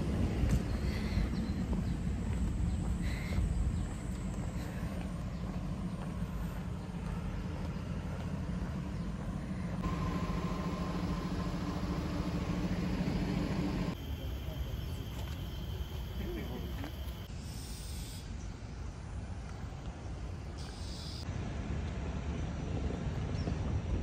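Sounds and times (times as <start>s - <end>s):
low background rumble: 0.0s - 17.3s.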